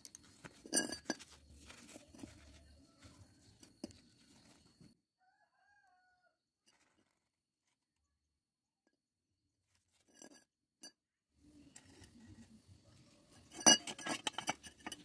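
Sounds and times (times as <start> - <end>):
paper rustling and crinkling: 0.0 - 5.0.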